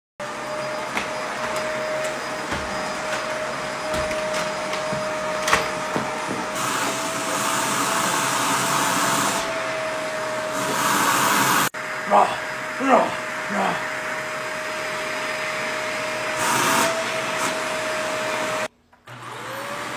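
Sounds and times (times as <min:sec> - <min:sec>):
vacuum cleaner running: 0:00.2 - 0:19.9
vacuum cleaner knocking: 0:00.5 - 0:08.0.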